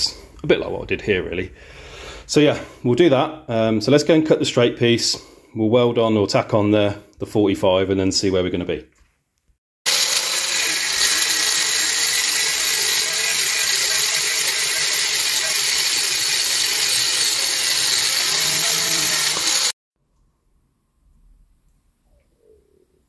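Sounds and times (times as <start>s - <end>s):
angle grinder cutting steel pipe: 9.9s - 19.8s.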